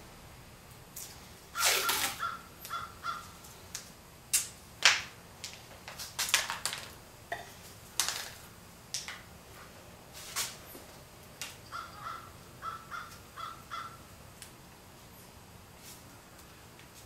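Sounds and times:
masking tape ripping: 1.6 - 2.3.

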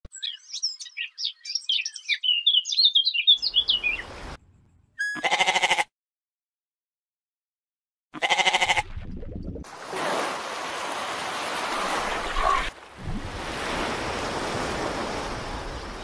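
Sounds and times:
goat bleating: 5.2 - 5.9, 8.2 - 8.9.

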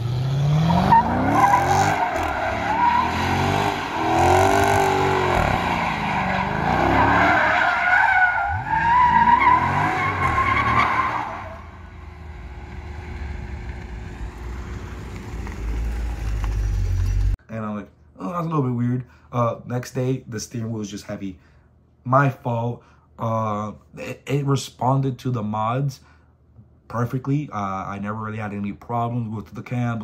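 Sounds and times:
car engine revving: 0.0 - 7.6.

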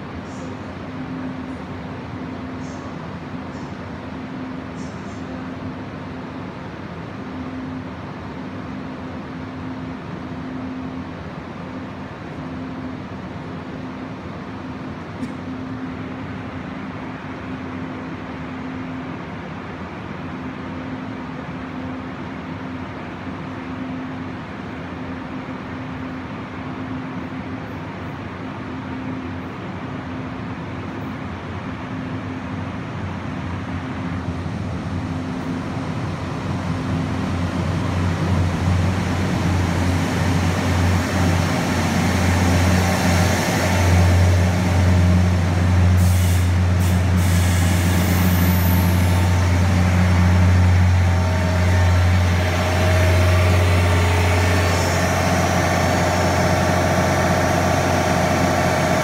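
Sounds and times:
diesel train engine drone: 0.0 - 59.0
brief hiss: 46.0 - 49.3
steady higher tone: 48.8 - 59.0.

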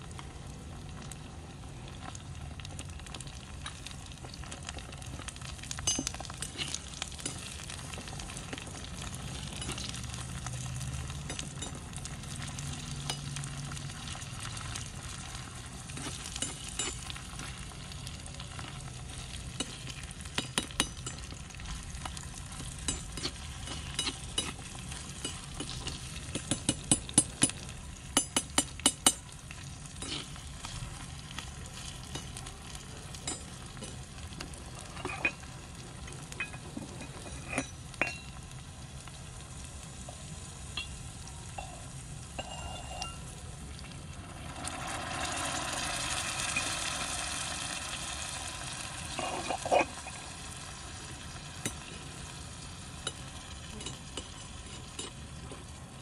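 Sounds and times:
vegetables sizzling in a wok: 0.0 - 56.0
metal clinks on a wok: 5.7 - 8.0, 9.3 - 10.4, 11.0 - 11.9, 16.0 - 17.3, 19.5 - 21.5, 22.6 - 29.3, 33.1 - 34.0, 36.3 - 38.4, 40.7 - 43.3, 53.0 - 55.2
metal spoon scraping a wok: 5.8 - 7.8, 18.6 - 27.6, 30.0 - 30.9, 36.4 - 38.3, 42.4 - 43.2, 49.1 - 50.2, 53.1 - 55.2.

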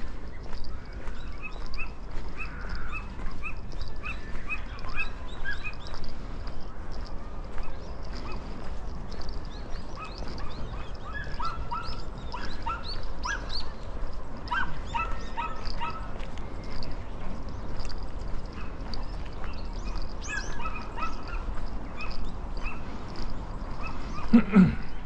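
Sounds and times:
low outdoor background: 0.0 - 25.0
high-pitched animal calls: 1.3 - 6.0.

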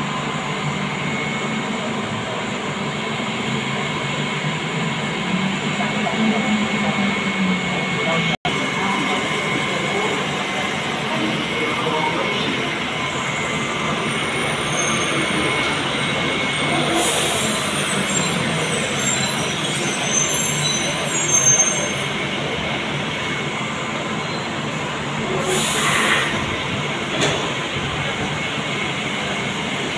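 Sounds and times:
train running noise: 0.0 - 29.9
short high hisses: 25.4 - 26.4.

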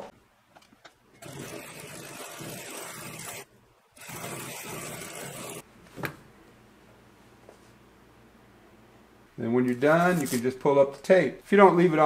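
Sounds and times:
sewing machine stitching: 1.2 - 5.6.

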